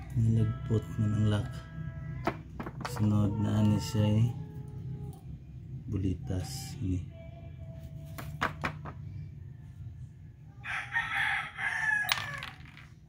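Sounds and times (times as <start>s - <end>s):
rooster crowing: 10.5s - 12.7s.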